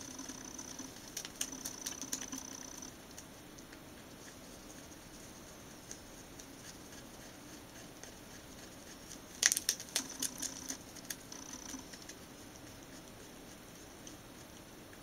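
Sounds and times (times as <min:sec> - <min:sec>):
rabbit chewing paper: 0:00.0 - 0:15.0.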